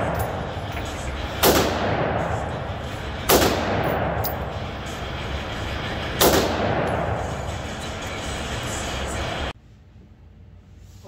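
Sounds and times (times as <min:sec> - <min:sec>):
rifle shots echoing indoors: 0:00.0 - 0:04.8, 0:06.0 - 0:07.6.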